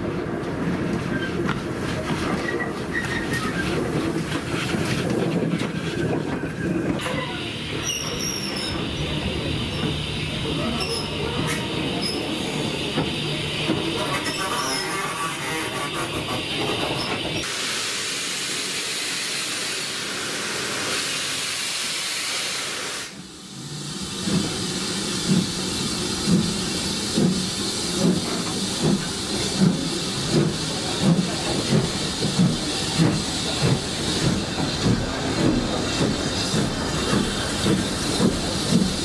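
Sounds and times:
loud steam hiss: 7.2s - 39.0s
steam locomotive exhaust beats: 22.7s - 39.0s.

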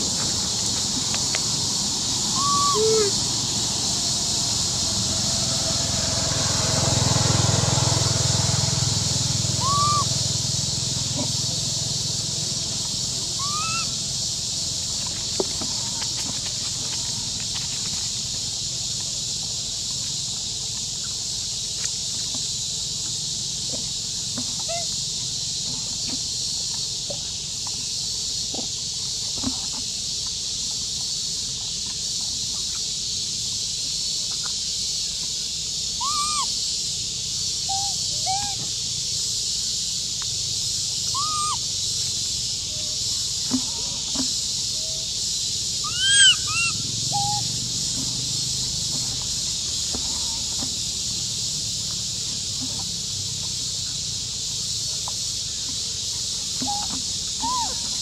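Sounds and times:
steady high-pitched hiss: 0.0s - 58.0s
short arching animal calls: 2.0s - 3.4s, 9.5s - 10.3s, 13.2s - 14.0s, 35.9s - 36.6s, 37.6s - 38.6s, 41.1s - 41.8s, 45.8s - 48.0s, 56.6s - 58.0s.

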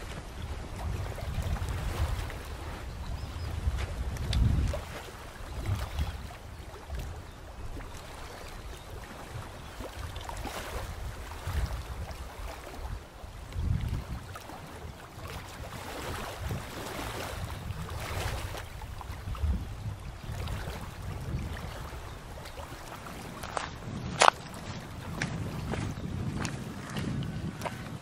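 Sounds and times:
rushing outdoor noise: 0.0s - 2.8s, 21.9s - 28.0s
wind on microphone: 0.0s - 28.0s.

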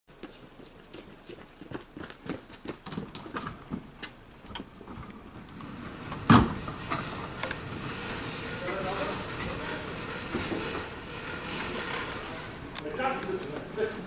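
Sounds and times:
steady mechanical hum: 0.2s - 14.0s
knocks and clatter: 2.8s - 13.8s
steel door slamming shut: 5.6s - 10.9s.

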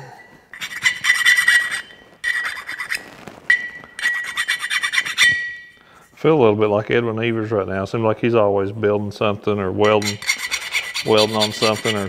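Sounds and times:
hand file scraping metal: 0.5s - 3.0s, 4.0s - 5.5s, 9.8s - 12.0s
high metallic ring: 0.8s - 2.7s, 3.5s - 5.8s.

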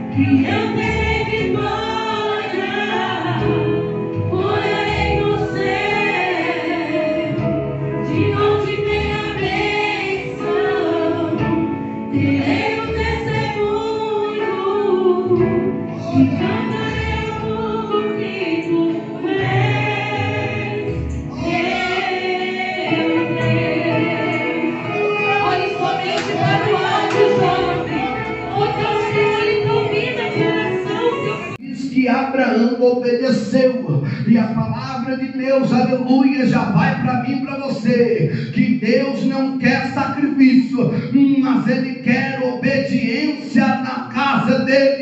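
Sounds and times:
woman singing gospel song: 0.0s - 7.5s, 8.1s - 31.6s.

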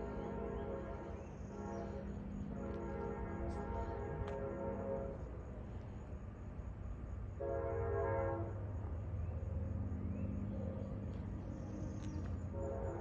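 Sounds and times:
distant train horn: 0.0s - 5.9s, 7.3s - 8.8s, 11.6s - 13.0s
train rumble: 0.0s - 13.0s.

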